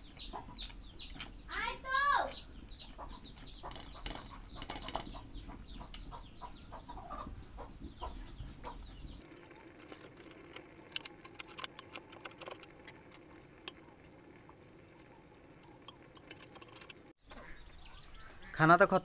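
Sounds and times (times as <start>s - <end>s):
chickens clucking: 2.5s - 17.7s.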